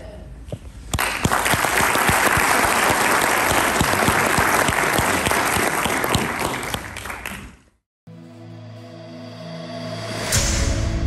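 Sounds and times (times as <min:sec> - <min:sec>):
audience applauding: 0:01.0 - 0:07.7.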